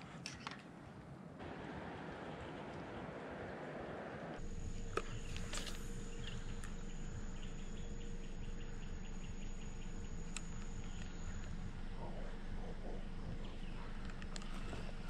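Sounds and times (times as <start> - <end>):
insects trilling: 4.4 - 15.0
sharp clicks: 10.1 - 11.6.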